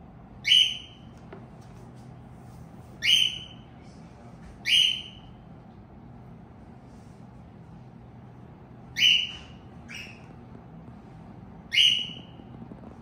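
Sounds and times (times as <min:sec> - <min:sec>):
cockatiel whistled calls: 0:00.4 - 0:01.1, 0:03.0 - 0:03.6, 0:04.6 - 0:05.3, 0:08.9 - 0:10.3, 0:11.7 - 0:12.4.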